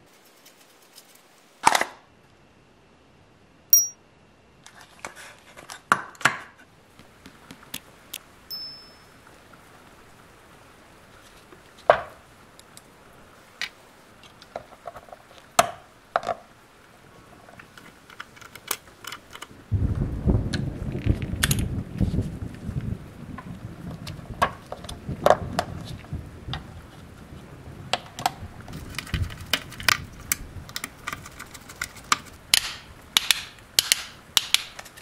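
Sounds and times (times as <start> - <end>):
short high pings: 3.7 - 4.0, 8.5 - 9.2.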